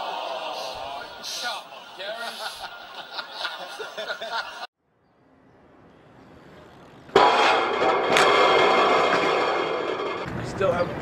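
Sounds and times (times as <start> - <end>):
crowd voices and laughter: 0.0 - 4.7.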